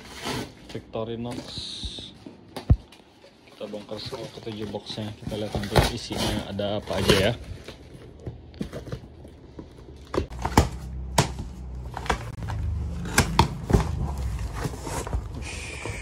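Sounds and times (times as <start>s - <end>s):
cardboard flaps clicking and knocking: 10.1s - 15.4s.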